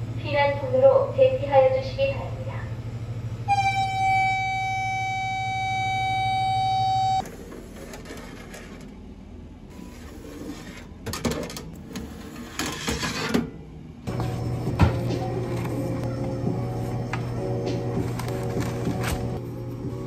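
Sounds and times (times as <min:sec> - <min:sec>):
electronic alarm tone: 0:03.5 - 0:07.2.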